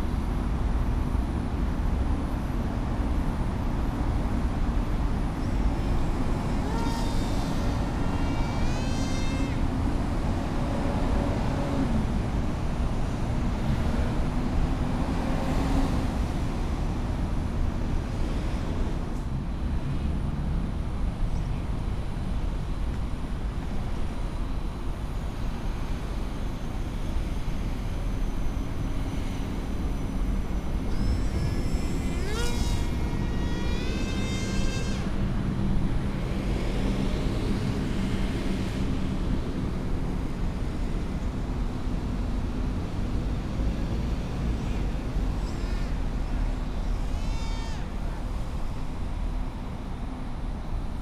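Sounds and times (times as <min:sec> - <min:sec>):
electric motor whine rising: 0:30.9 - 0:35.2.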